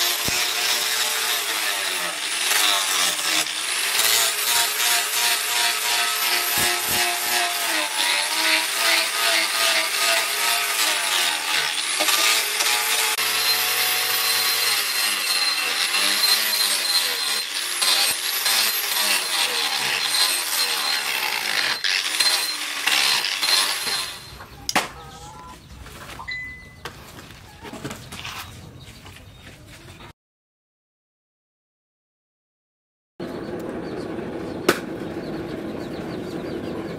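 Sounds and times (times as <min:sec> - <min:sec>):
angle grinder grinding metal: 0:00.0 - 0:24.7.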